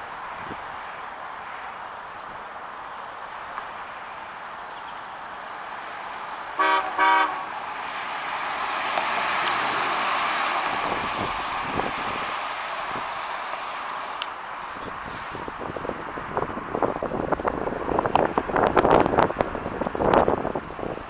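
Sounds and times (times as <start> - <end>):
car driving past: 5.7 - 14.2
car horn tooting: 6.6 - 7.6.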